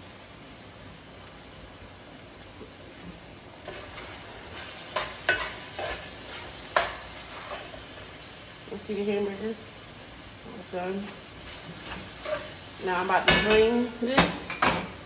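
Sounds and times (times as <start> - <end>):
meat sizzling: 0.0 - 15.0
spoon scraping pan: 3.6 - 8.2, 11.4 - 13.6
spoon clacking against pan: 4.9 - 6.1, 6.7 - 7.7.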